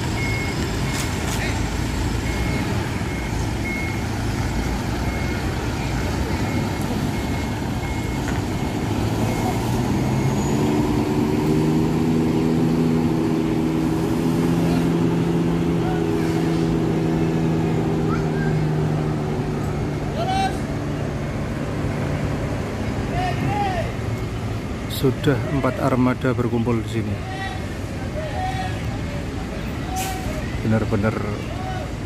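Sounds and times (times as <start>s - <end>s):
reversing beeper: 0.0s - 1.3s, 2.2s - 12.0s
bus diesel engine running: 0.0s - 32.0s.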